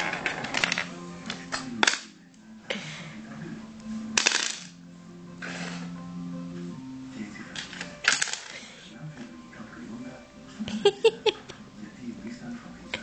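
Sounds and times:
checkers and dice clacking on board: 4.2s - 4.8s.

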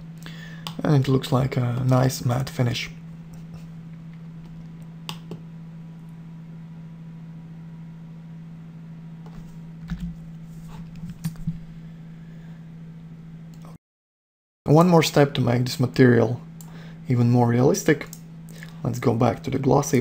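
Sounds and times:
steady low hum: 0.0s - 13.8s, 14.7s - 20.0s.

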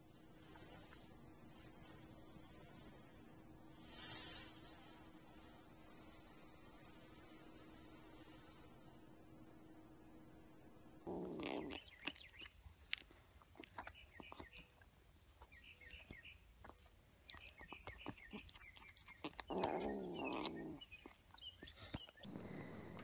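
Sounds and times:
kitten crunching dry kibble: 11.1s - 23.0s.

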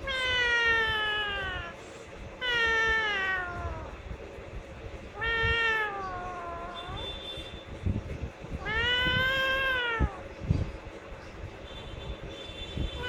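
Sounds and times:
parakeet mimicking cat meow: 0.0s - 1.8s, 2.4s - 4.0s, 5.1s - 7.2s, 8.6s - 10.3s.

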